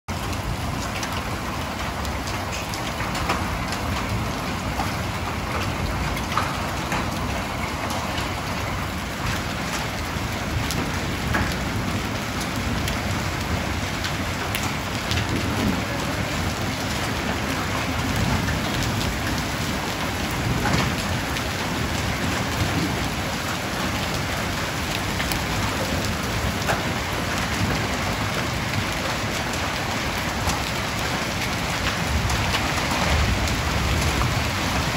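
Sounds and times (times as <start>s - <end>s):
hailstones ticking: 0.1s - 34.9s
heavy rain hiss: 10.0s - 34.8s.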